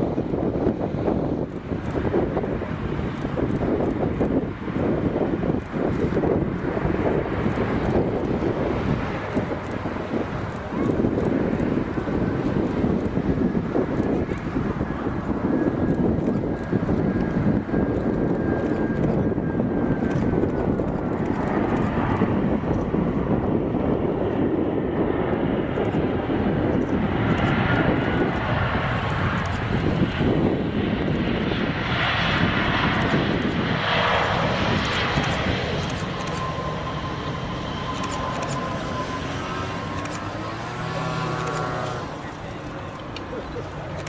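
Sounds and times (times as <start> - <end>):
jet engine noise: 0.0 - 44.0
hissing roar: 34.8 - 43.9.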